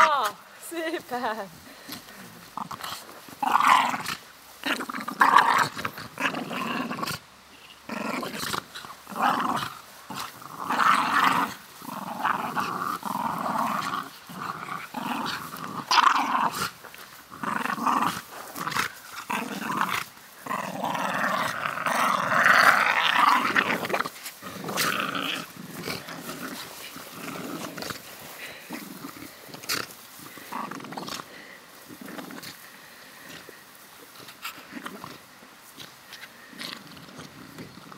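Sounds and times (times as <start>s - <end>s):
dogs growling in play: 1.6s - 37.9s.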